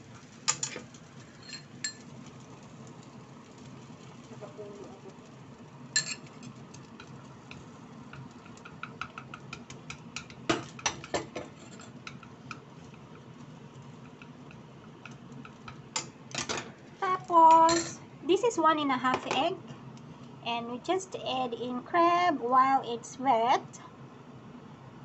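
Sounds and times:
low steady hum: 0.0s - 25.0s
chopsticks scraping frying pan: 0.1s - 2.1s, 6.0s - 16.6s.

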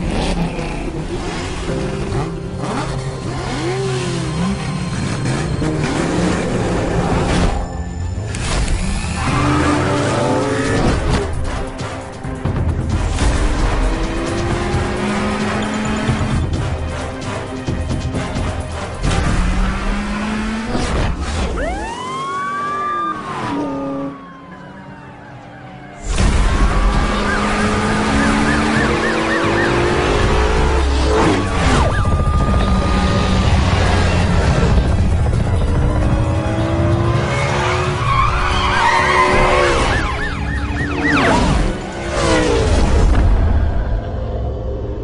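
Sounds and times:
racing car engine: 0.0s - 45.0s
police siren: 21.4s - 33.9s, 37.5s - 42.6s.

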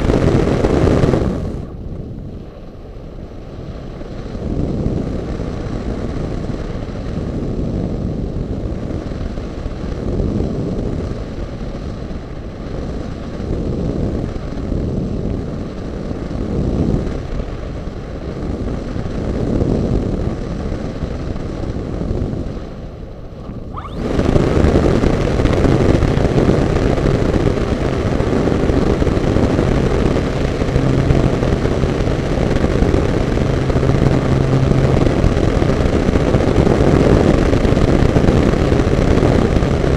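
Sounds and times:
airflow rushing past camera: 23.2s - 25.7s
low hum: 23.2s - 39.9s
propeller motor droning: 23.2s - 39.9s.

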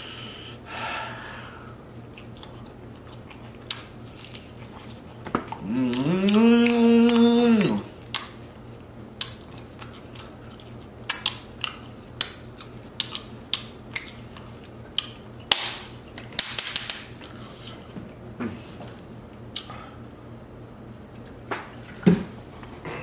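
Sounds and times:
chewing and lip-smacking: 1.7s - 15.5s, 17.1s - 18.0s, 18.9s - 19.8s.

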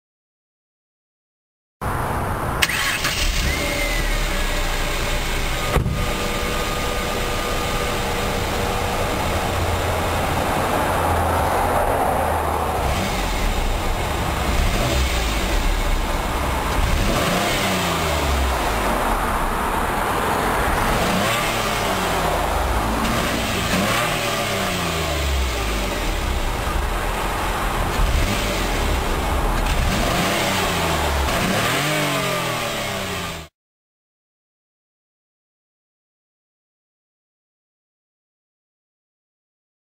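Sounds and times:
car exhaust idling and revving: 3.3s - 33.5s.

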